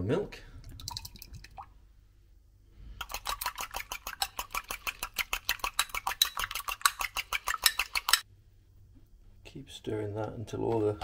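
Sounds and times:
utensil clicking against mug: 0:03.0 - 0:08.2.

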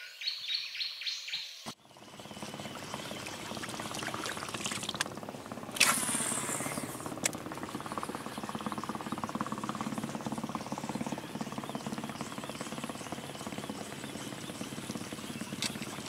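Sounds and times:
boat motor running: 0:01.8 - 0:16.0
water splashing along boat hull: 0:03.2 - 0:05.1.

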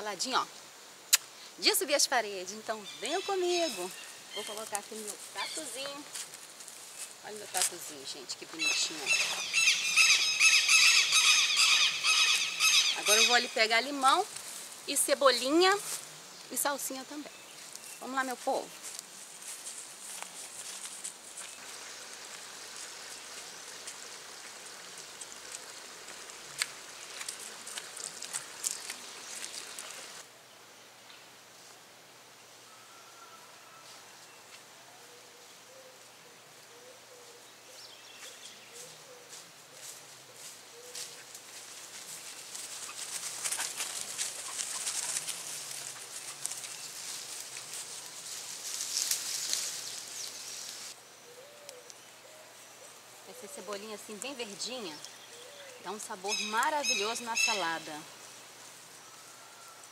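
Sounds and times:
small ticks and patters: 0:03.4 - 0:08.0, 0:13.1 - 0:30.2, 0:38.2 - 0:51.0
herbs rustling and snapping: 0:18.7 - 0:30.2, 0:41.0 - 0:50.9
stream water running: 0:21.0 - 0:30.3.

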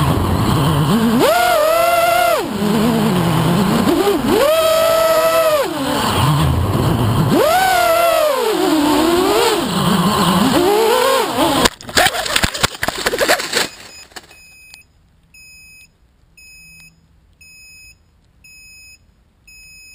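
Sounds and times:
drone motors whining: 0:00.0 - 0:11.8
drone crashing into branches: 0:11.5 - 0:14.3
clattering and rustling: 0:11.6 - 0:14.5.

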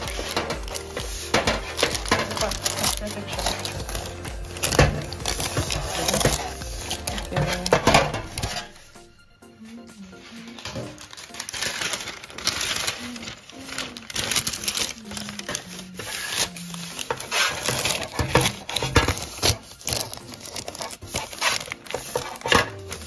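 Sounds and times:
baking paper crinkling: 0:00.0 - 0:23.0
music playing: 0:00.0 - 0:23.0.

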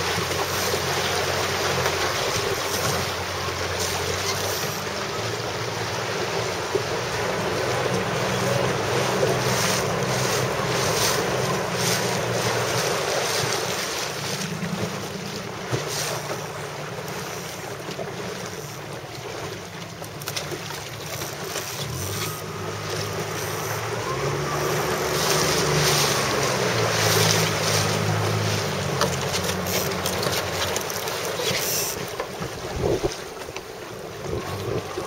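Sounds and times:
rushing water: 0:00.0 - 0:35.0
low hum: 0:20.9 - 0:31.0
wind buffeting microphone: 0:32.4 - 0:33.4.

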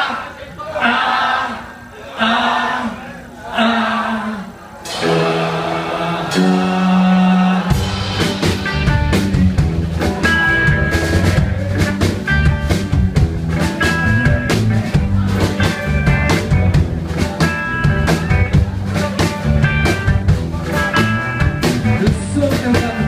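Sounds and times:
rock band playing live: 0:04.8 - 0:23.0.

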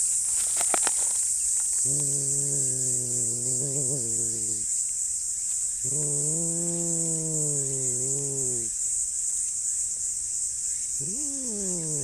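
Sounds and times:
high insect buzz: 0:00.0 - 0:12.0
cat growling: 0:01.8 - 0:04.7, 0:05.8 - 0:08.7, 0:11.0 - 0:12.0.

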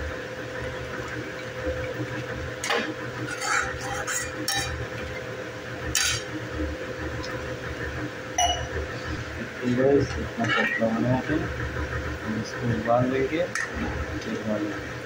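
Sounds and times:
metal spoon scraping a pan: 0:03.2 - 0:04.8, 0:10.4 - 0:10.9.

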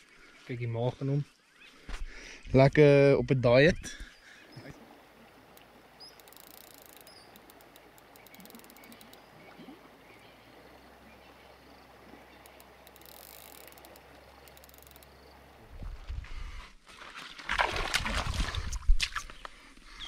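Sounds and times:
low chirps: 0:03.8 - 0:15.6
high-pitched clicking trills: 0:06.2 - 0:09.2, 0:12.4 - 0:15.1.

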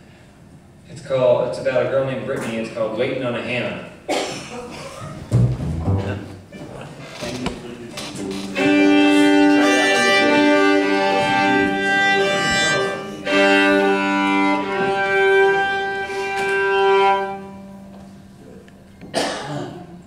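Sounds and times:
upright bass: 0:05.2 - 0:06.6
fiddles playing long bowed notes: 0:08.3 - 0:18.3.

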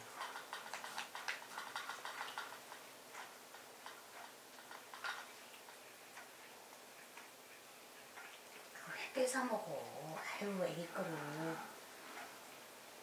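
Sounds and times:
cats chewing crunchy food: 0:00.0 - 0:08.8.

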